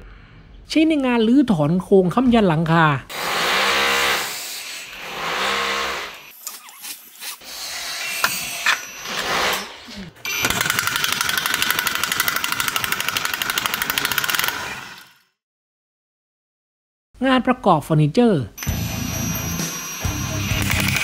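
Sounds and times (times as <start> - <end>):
impact wrench hammering: 10.3 - 14.6, 20.4 - 21.0.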